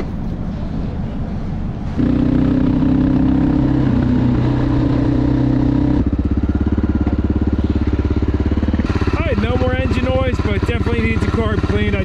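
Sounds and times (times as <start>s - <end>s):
motorcycle engine running: 1.9s - 12.0s
engine thumping idle: 6.1s - 12.0s.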